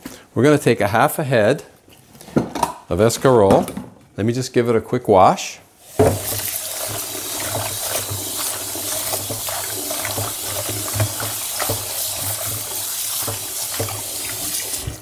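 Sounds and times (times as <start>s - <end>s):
kitchen tap running: 5.8s - 15.0s.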